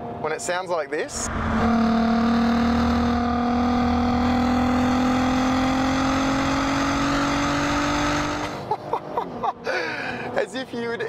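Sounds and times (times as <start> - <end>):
car engine accelerating hard: 1.1 - 8.7.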